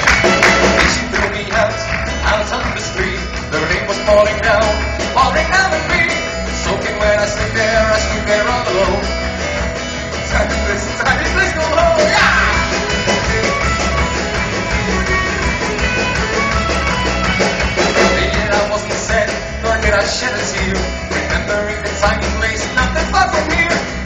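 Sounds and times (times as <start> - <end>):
live folk-rock band playing: 0.0 - 24.0
man singing into microphone: 0.8 - 9.2, 10.2 - 12.8, 18.0 - 24.0.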